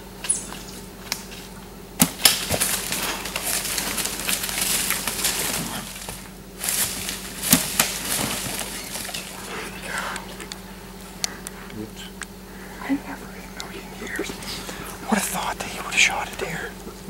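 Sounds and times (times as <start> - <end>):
sharp cracks: 2.0 - 10.6
deer thrashing in dry leaves: 2.0 - 10.9.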